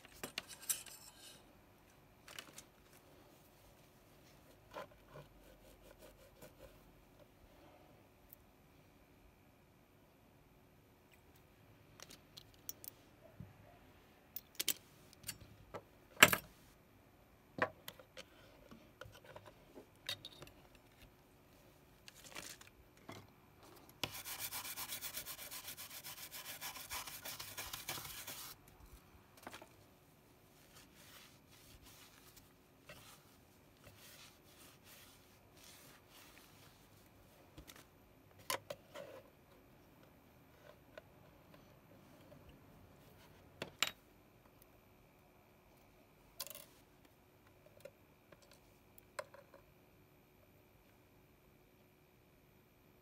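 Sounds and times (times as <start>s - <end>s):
brush scrubbing circuit board: 24.0s - 28.6s.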